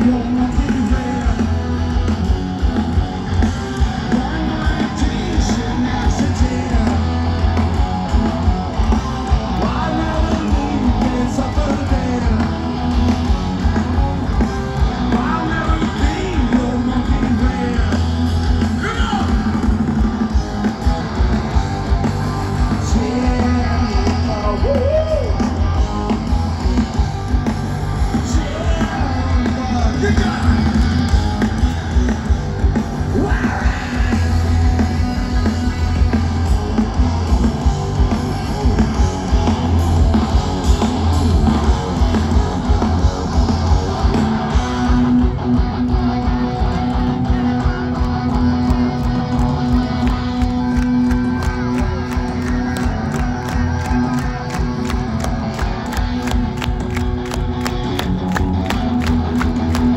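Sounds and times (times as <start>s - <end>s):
live rock band: 0.0s - 59.9s
sung and shouted vocals: 33.0s - 35.1s.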